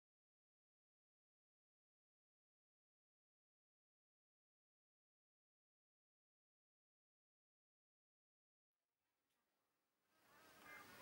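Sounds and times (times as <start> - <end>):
faint outdoor background sound: 8.8 - 11.0.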